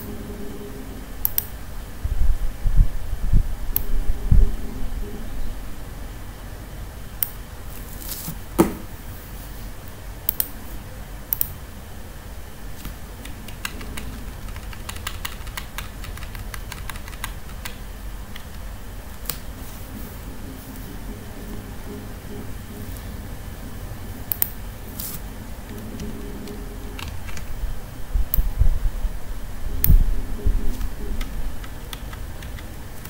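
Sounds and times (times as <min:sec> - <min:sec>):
low steady hum: 0:00.0 - 0:33.0
computer mouse clicking: 0:01.2 - 0:01.5, 0:03.7 - 0:03.9, 0:10.3 - 0:10.6, 0:11.3 - 0:11.6, 0:12.8 - 0:19.5, 0:24.3 - 0:27.5, 0:30.7 - 0:32.8.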